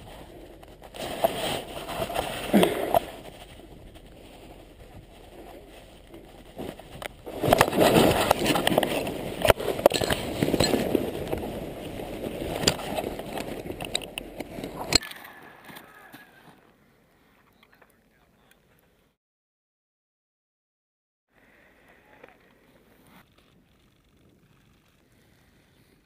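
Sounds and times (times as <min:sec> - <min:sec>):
rustling and scraping through snow: 0:00.0 - 0:16.6, 0:22.2 - 0:26.0.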